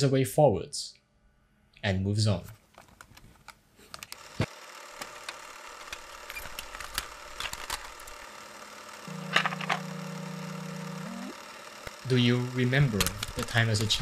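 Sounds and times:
plastic cassette tape clacking: 5.0 - 8.2, 12.9 - 14.0
low hum: 9.0 - 13.4.

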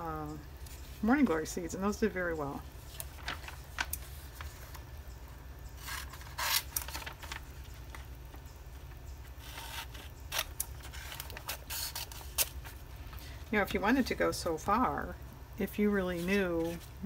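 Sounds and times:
magazine pages rustling: 2.8 - 5.1, 5.7 - 13.4, 16.0 - 17.0.

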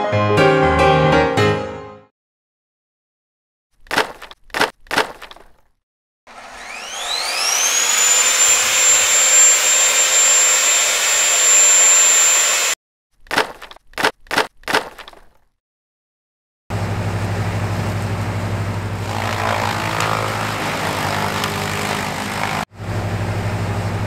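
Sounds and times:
table saw ripping wood: 6.3 - 13.6, 19.0 - 22.7.

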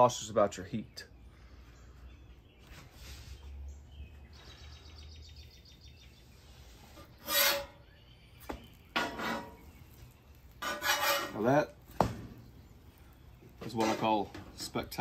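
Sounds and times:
metal spatula scraping griddle: 6.6 - 8.0, 8.9 - 9.8, 10.5 - 11.8, 13.6 - 14.5.

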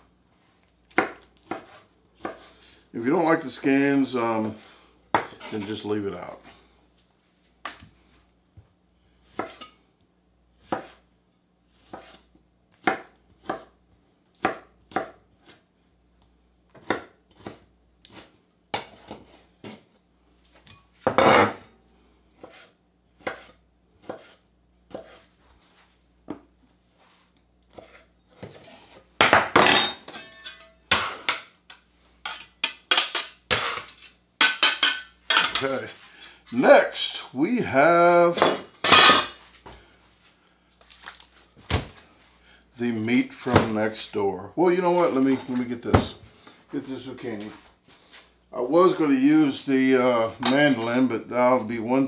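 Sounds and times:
knife chopping on cutting board: 1.0 - 2.5, 9.3 - 9.7, 10.6 - 11.0, 11.8 - 12.2, 12.8 - 13.7, 14.4 - 15.6, 16.7 - 19.8, 22.4 - 25.2.

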